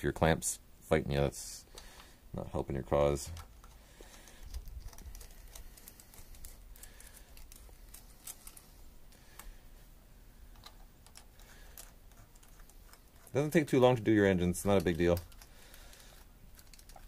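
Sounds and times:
small metallic clicks: 0:14.6 - 0:17.0.

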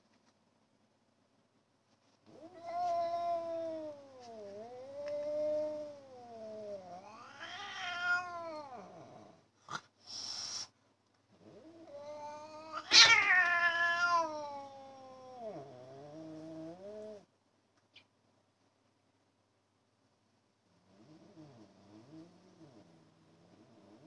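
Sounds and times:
cats yowling: 0:02.4 - 0:08.9, 0:11.8 - 0:15.7
cat hiss: 0:09.7 - 0:10.8.

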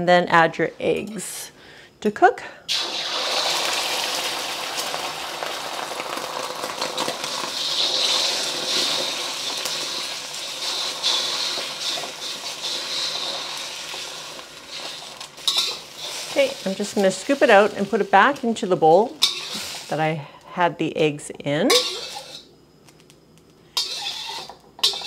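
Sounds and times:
eggs sizzling in oil: 0:02.7 - 0:20.6, 0:21.7 - 0:25.0
chopsticks scraping wok: 0:06.7 - 0:18.4, 0:19.1 - 0:20.0, 0:21.7 - 0:22.5, 0:23.7 - 0:25.0.

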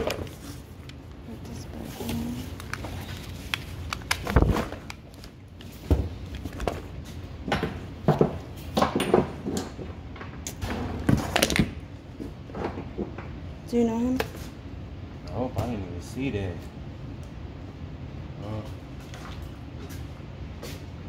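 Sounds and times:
knocks and thumps of objects: 0:07.4 - 0:11.8.

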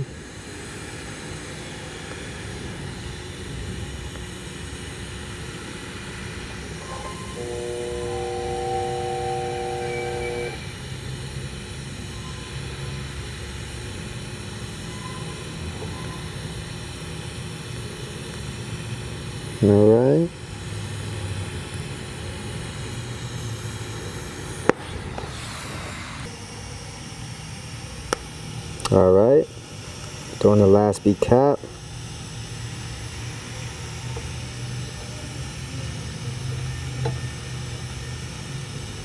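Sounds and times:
welding arc buzz and hiss: 0:00.0 - 0:39.0
steady chord of tones: 0:06.6 - 0:10.8.

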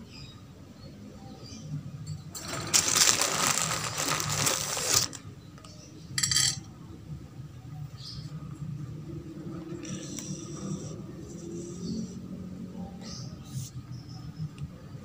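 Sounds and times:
wire cage rattling: 0:02.3 - 0:05.2.

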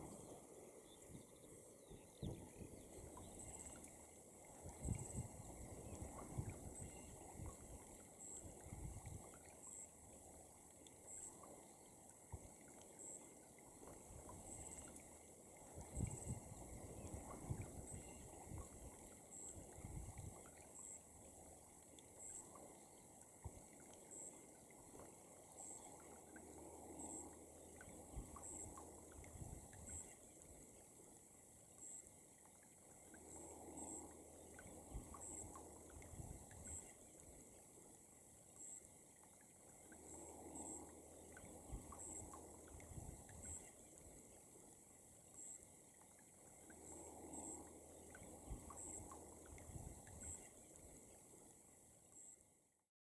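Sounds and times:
faint low outdoor rumble: 0:00.0 - 0:52.8
wind rumble on microphone: 0:01.9 - 0:03.5, 0:04.5 - 0:07.8, 0:08.4 - 0:09.4, 0:15.7 - 0:19.0, 0:19.6 - 0:20.5, 0:29.2 - 0:30.0, 0:35.9 - 0:36.7, 0:41.4 - 0:42.0, 0:42.7 - 0:43.6, 0:48.2 - 0:50.4.

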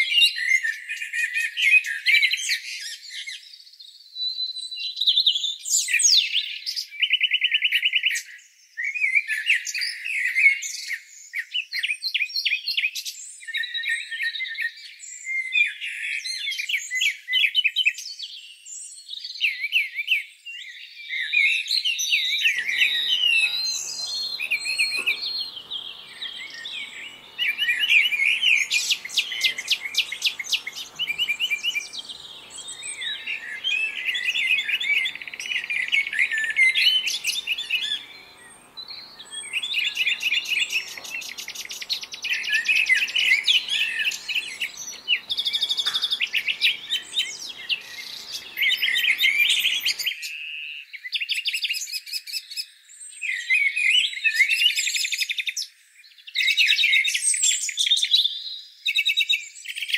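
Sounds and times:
songbirds chirping and trilling: 0:20.4 - 0:59.9.

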